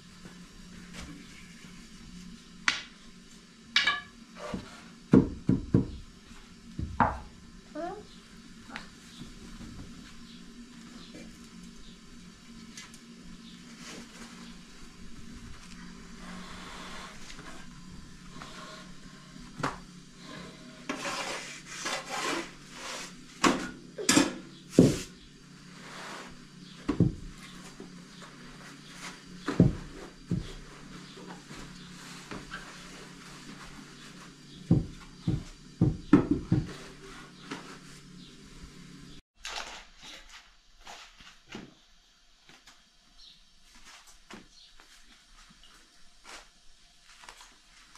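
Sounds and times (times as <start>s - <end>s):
steady low hum: 0.0s - 39.2s
sharp knocks and thumps: 5.1s - 6.0s, 29.4s - 30.6s, 34.6s - 36.8s.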